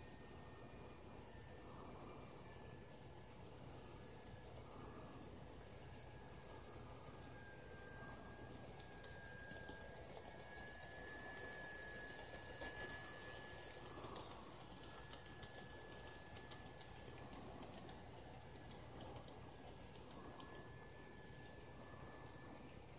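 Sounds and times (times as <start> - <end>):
thin high whine: 0.0 - 18.0
model train wheels clicking: 8.4 - 22.4.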